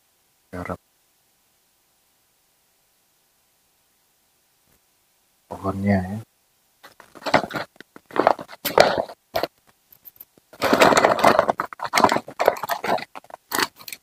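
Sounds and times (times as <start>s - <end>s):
painting tools scraping and rattling: 6.8s - 14.0s.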